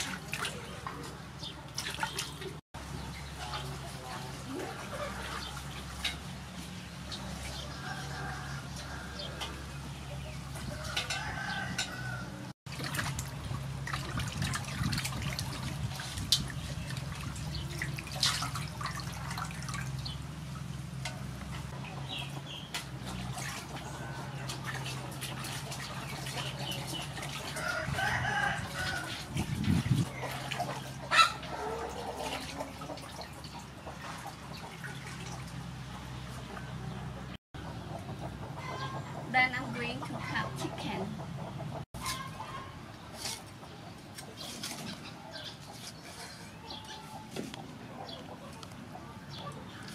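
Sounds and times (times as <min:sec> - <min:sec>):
chickens clucking: 0:00.0 - 0:12.6, 0:20.0 - 0:49.9
water splashing in a metal basin: 0:00.0 - 0:37.3.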